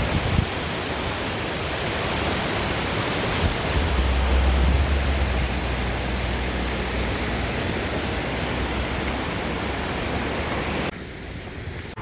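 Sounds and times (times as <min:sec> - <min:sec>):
river rapids rushing: 0:00.0 - 0:12.0
low rumble: 0:03.5 - 0:09.1.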